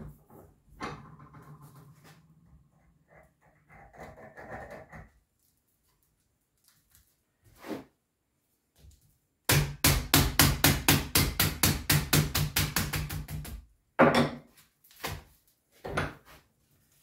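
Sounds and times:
hammer knock on workbench: 14.0s - 14.4s.

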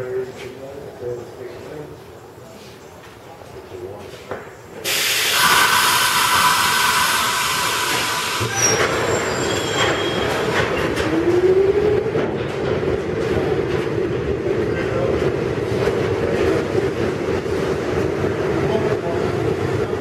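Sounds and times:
train wheels rumbling on rails: 4.3s - 20.0s
loud hiss of air: 4.8s - 8.6s.

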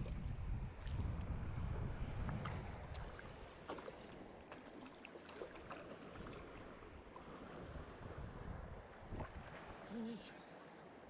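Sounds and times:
wind rumbling on microphone: 0.0s - 3.6s, 5.6s - 10.0s
sea water sloshing and splashing: 0.0s - 11.0s.

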